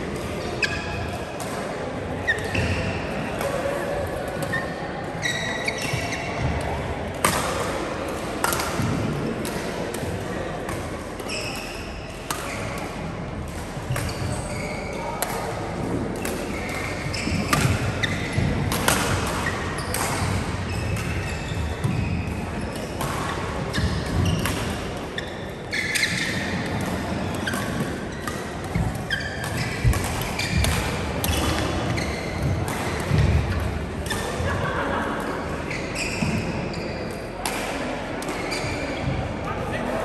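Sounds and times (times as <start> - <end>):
shoe squeaks: 4.5 - 6.4, 11.2 - 12.1, 13.9 - 15.1, 16.6 - 18.3, 19.5 - 22.2, 25.2 - 26.6, 29.0 - 32.5, 35.7 - 37.0, 38.4 - 39.1
racket striking shuttlecock: 16.2 - 22.0, 22.7 - 24.8, 26.0 - 34.4.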